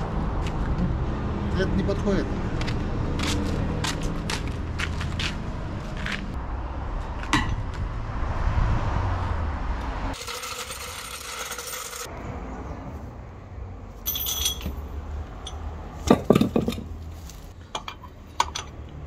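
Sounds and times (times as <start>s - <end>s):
low rumble: 5.4s - 10.2s
metal tools clinking: 14.0s - 17.0s, 17.7s - 19.0s
ringing metal clank: 14.1s - 14.8s.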